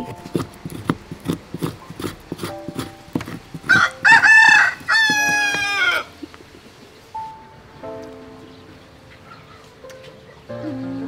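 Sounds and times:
spoon scraping plastic tub: 0:00.0 - 0:05.8
rooster crowing: 0:03.6 - 0:06.2.

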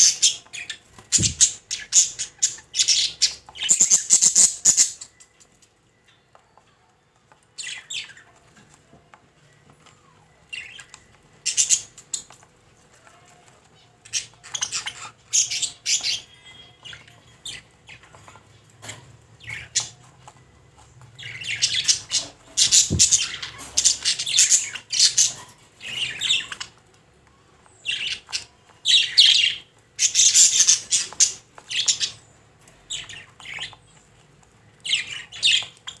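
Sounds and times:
budgerigar chirping and squawking: 0:00.0 - 0:05.2, 0:10.6 - 0:12.3, 0:14.0 - 0:20.1, 0:21.2 - 0:26.8, 0:27.8 - 0:32.3.

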